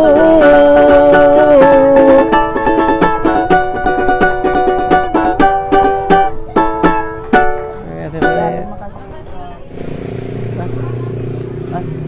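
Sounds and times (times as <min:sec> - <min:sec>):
person singing with vibrato: 0:00.0 - 0:03.1
strummed string chords: 0:00.0 - 0:12.0.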